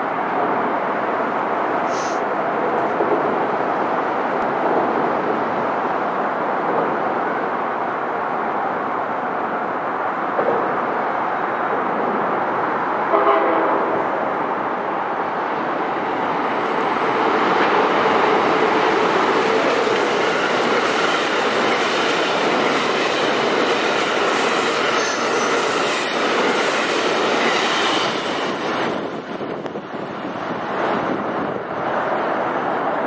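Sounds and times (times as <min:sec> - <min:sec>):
train horn blast: 0:13.1 - 0:14.1
train cars clattering on rails: 0:16.2 - 0:29.8.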